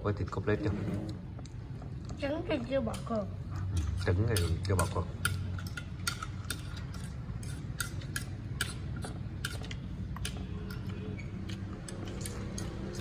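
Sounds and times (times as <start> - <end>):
fork clicking on plate: 3.8 - 13.0.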